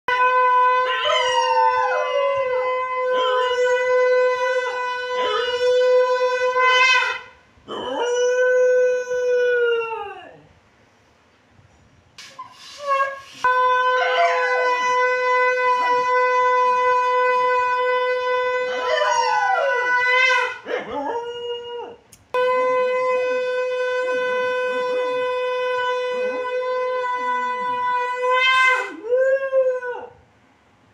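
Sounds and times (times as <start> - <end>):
dog howling: 0.1 - 10.4, 12.8 - 22.0, 23.0 - 30.2
conch shell blasts: 12.2 - 15.9, 22.4 - 27.0.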